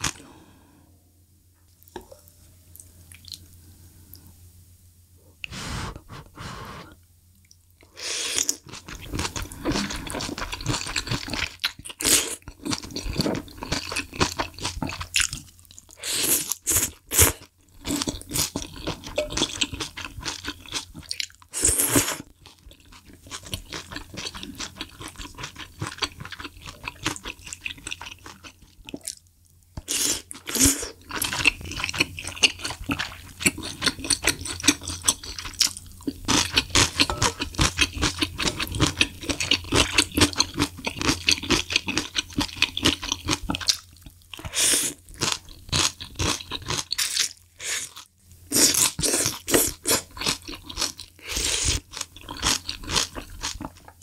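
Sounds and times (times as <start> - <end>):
crunchy chewing: 29.9 - 54.0.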